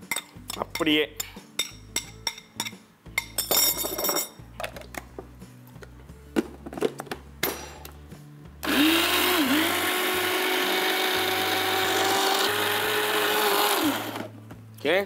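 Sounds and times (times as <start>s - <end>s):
mixer grinder whining: 8.6s - 14.3s.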